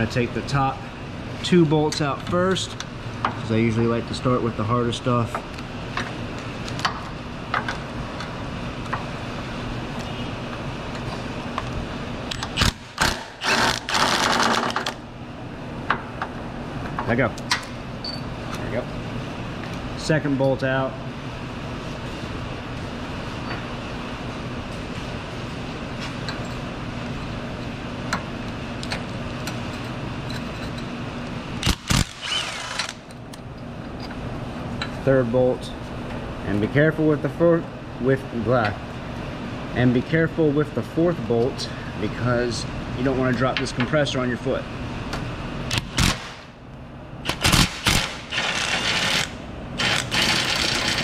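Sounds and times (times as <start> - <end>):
steady background hum: 0.0 - 51.0
impact wrench bursts: 12.3 - 15.0, 31.6 - 33.0, 45.7 - 46.5, 47.2 - 51.0
impact wrench rattling: 12.6 - 15.0.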